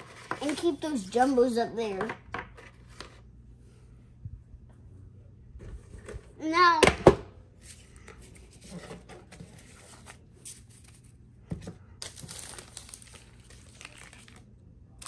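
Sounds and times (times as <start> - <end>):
card packaging crinkling: 12.0 - 15.0.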